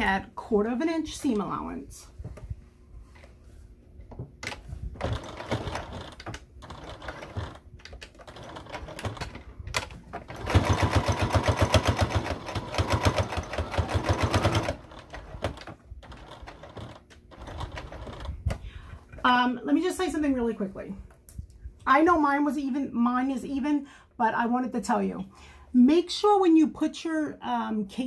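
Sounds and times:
sewing machine stitching: 5.0 - 18.4.

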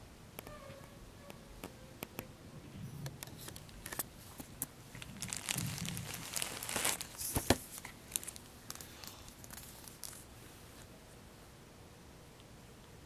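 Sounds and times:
box and wrapping crinkling: 3.3 - 10.3.

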